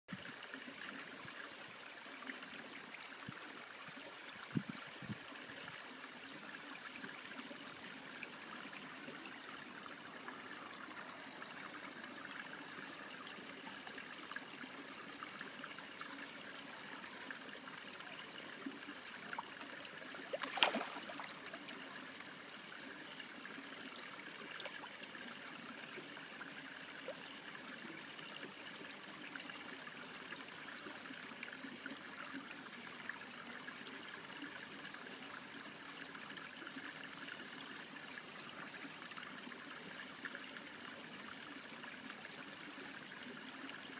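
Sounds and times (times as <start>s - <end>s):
trickle of running water: 0.1s - 43.9s
sharp splash: 20.3s - 21.5s.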